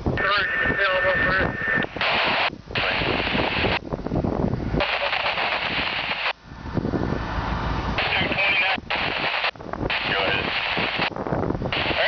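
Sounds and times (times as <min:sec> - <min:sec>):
fire rushing noise: 0:00.0 - 0:12.0
wind buffeting microphone: 0:00.0 - 0:12.0
fire crackling and popping: 0:01.7 - 0:04.0, 0:04.8 - 0:06.4, 0:08.0 - 0:12.0.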